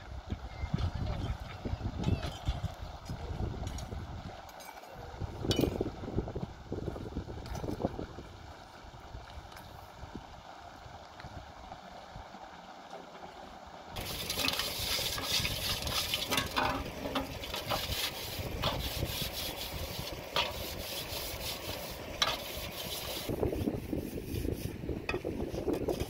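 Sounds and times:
scrubbing metal pans: 14.0 - 26.0.

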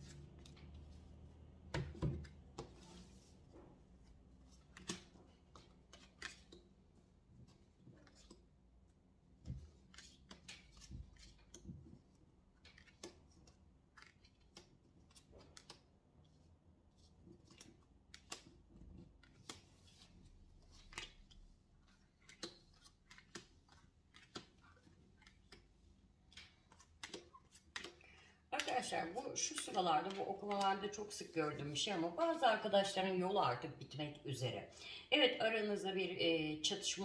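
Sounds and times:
cards clicking and slapping: 4.5 - 6.7, 9.4 - 16.0, 17.4 - 19.8, 20.6 - 30.8.

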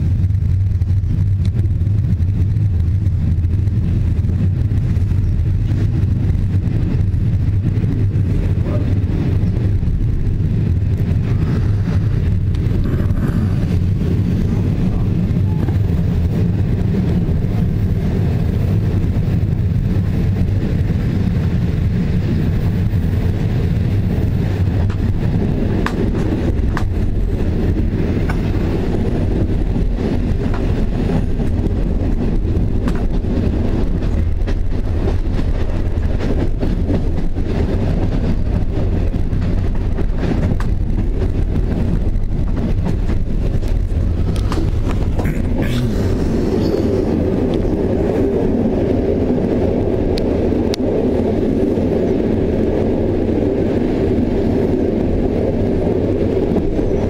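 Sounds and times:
train wheels rumbling on rails: 0.0 - 57.0
rushing sound: 38.9 - 51.7.

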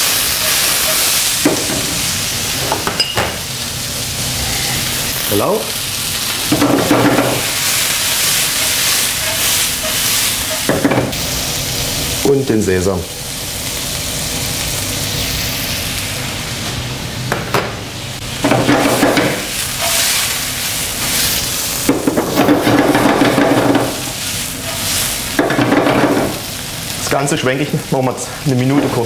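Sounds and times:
wok scraping: 0.0 - 11.4, 18.2 - 27.1
food sizzling in a wok: 0.0 - 29.0.

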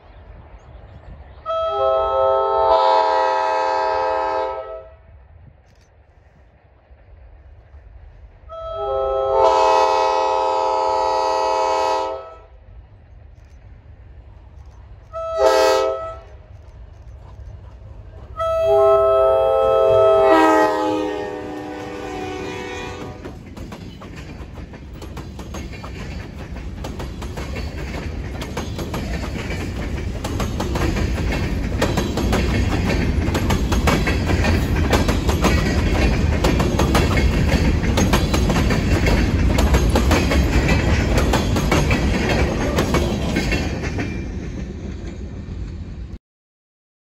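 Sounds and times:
train wheels rumbling on rails: 0.0 - 46.2
wheels clicking over rail joints: 13.2 - 19.2, 20.0 - 45.8.

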